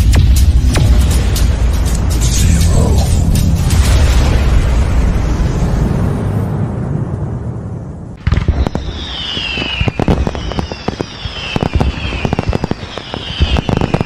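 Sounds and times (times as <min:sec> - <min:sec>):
firework bangs and crackling: 0:00.0 - 0:02.4, 0:03.4 - 0:06.2, 0:08.2 - 0:14.0
low rumble: 0:00.0 - 0:13.7
falling firework whistles: 0:08.2 - 0:14.0.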